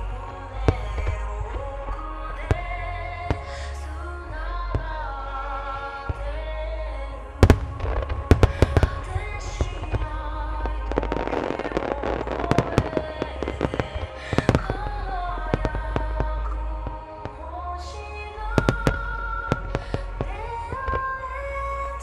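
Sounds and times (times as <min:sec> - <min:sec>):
music: 0:00.0 - 0:22.0
fireworks cracking and banging: 0:07.4 - 0:17.4, 0:18.5 - 0:22.0.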